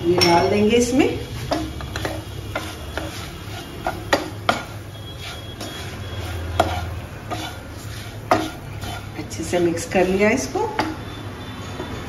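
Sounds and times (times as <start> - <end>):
wooden spatula scraping a pan: 0.8 - 11.0.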